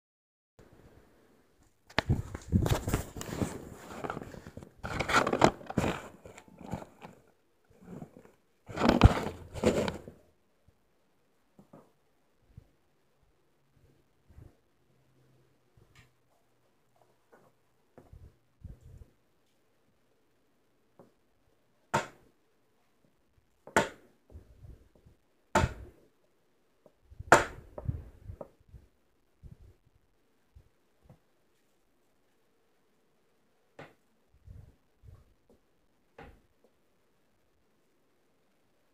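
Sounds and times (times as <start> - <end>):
small knocks and rustles: 1.6 - 10.2.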